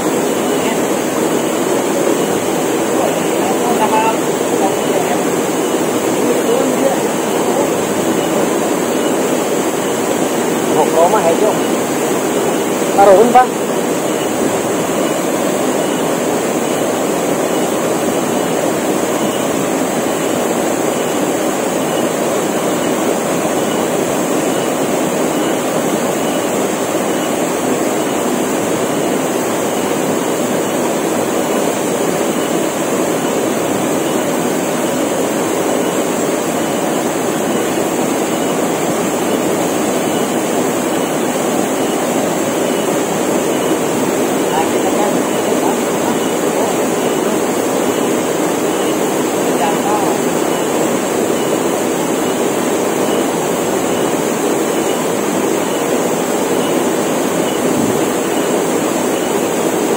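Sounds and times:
cicadas droning: 0.0 - 59.9.

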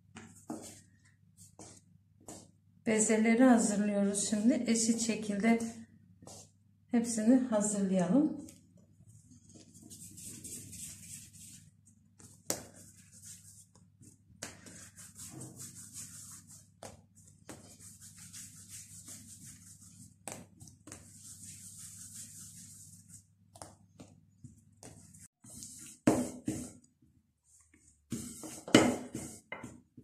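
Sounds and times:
hands rubbing dough: 0.1 - 2.6, 9.0 - 26.9.

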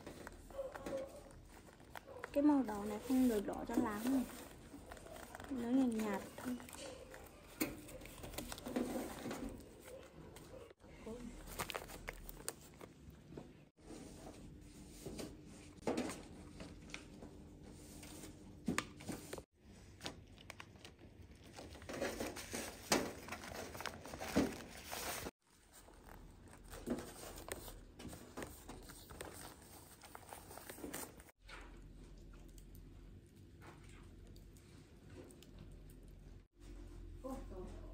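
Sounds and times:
wrapping crinkling and rustling: 0.0 - 13.7, 18.0 - 31.4.

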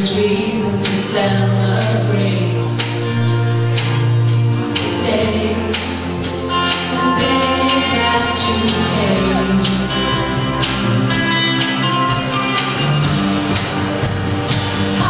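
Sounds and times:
live band playing: 0.0 - 15.0
voices singing: 4.7 - 11.0.

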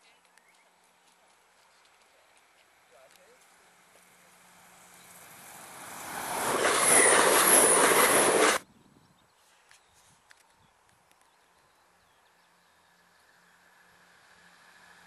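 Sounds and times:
train rushing past: 4.1 - 8.6
high wavering squeal: 6.3 - 8.6.

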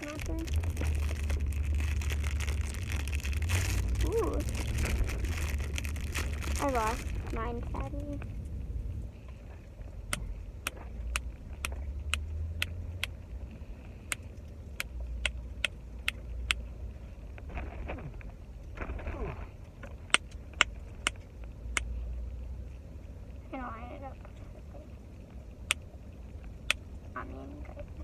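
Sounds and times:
rustling: 0.0 - 10.0, 17.1 - 21.0
car cabin rumble: 0.0 - 21.8.

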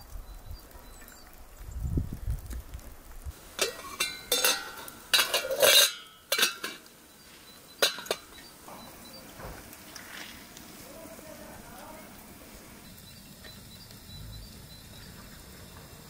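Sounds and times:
kettle lid and glass clinking: 3.6 - 6.8, 7.8 - 8.4.

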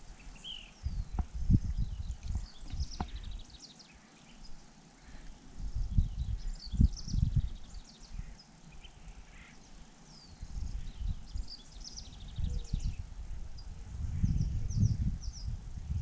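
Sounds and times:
wind gusting on microphone: 0.0 - 3.5, 5.5 - 8.4, 10.3 - 16.0
songbirds chirping: 0.0 - 16.0.

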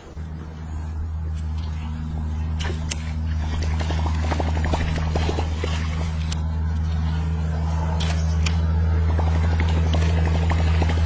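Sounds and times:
boat motor humming: 0.0 - 11.0.

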